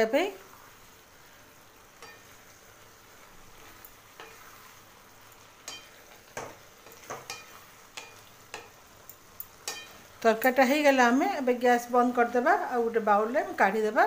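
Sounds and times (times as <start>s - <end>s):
food sizzling: 0.0s - 14.0s
spatula scraping metal pan: 3.3s - 4.8s.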